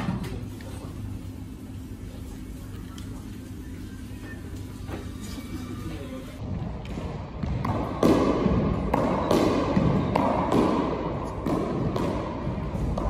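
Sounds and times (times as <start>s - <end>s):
racket hitting squash ball: 6.5s - 13.0s.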